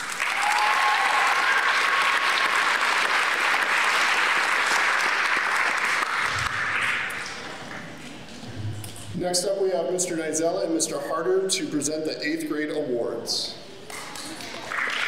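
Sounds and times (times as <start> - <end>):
audience applauding: 0.0 - 7.8, 14.2 - 15.0.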